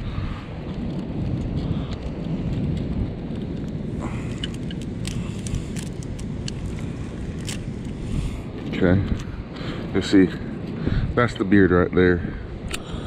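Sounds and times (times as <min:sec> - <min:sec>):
wind buffeting microphone: 0:00.0 - 0:13.0
mussel shells clicking: 0:01.9 - 0:07.7.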